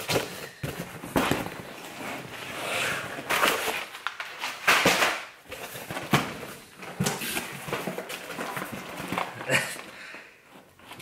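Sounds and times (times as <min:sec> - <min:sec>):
plastic bags crinkling: 0:03.2 - 0:10.1.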